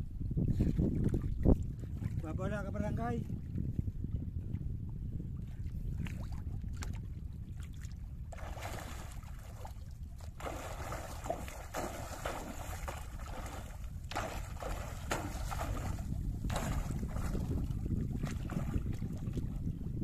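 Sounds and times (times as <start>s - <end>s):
wind rumbling on microphone: 0.0s - 20.0s
sea water splashing: 6.0s - 19.7s.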